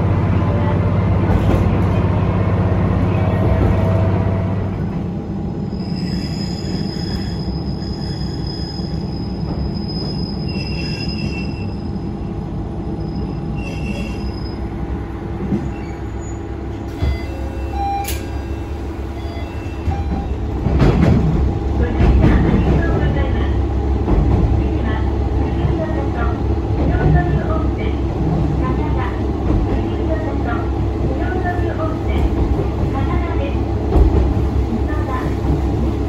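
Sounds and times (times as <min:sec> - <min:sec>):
train rumbling: 0:00.0 - 0:36.0
high wheel squeal: 0:05.7 - 0:11.8, 0:13.0 - 0:14.6.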